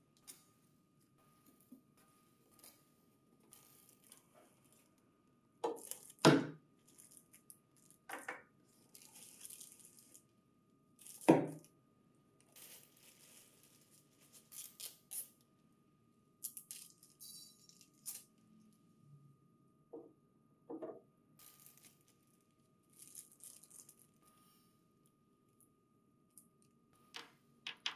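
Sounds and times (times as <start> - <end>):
plastic bags crinkling: 3.8 - 4.9, 5.7 - 8.2, 8.8 - 10.3, 11.0 - 11.7, 12.4 - 15.3, 16.4 - 18.4, 21.4 - 24.2
bag crackling open: 12.5 - 15.3, 22.9 - 24.0.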